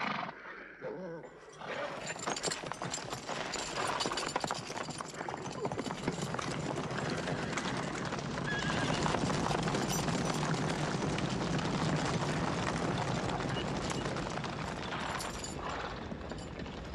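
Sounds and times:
horses galloping on stony ground: 0:01.5 - 0:16.9.

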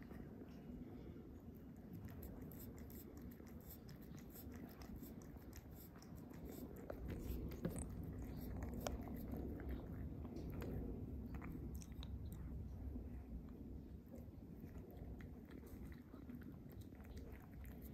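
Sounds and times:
cat chewing and licking: 0:00.0 - 0:17.9
low rumble: 0:06.8 - 0:17.4.

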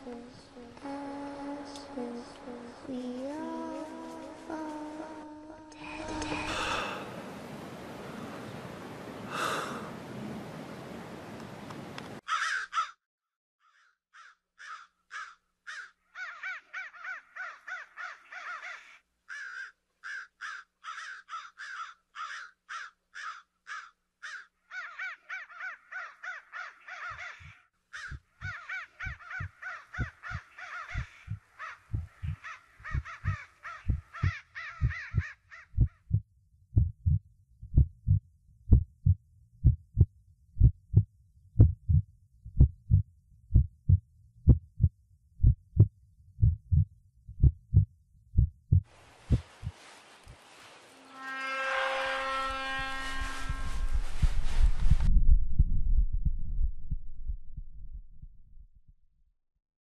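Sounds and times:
crows cawing: 0:12.2 - 0:13.0, 0:13.6 - 0:35.8
heartbeat sound effect: 0:28.1 - 0:49.8, 0:54.3 - 0:59.0.

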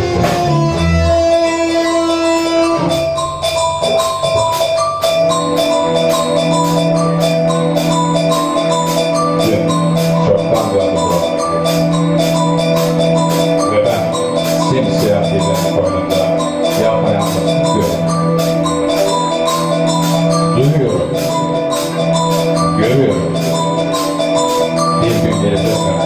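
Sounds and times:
electric guitars: 0:00.0 - 0:03.0
bass guitar: 0:00.0 - 0:03.2
drum kit steady beat: 0:00.0 - 0:26.0.

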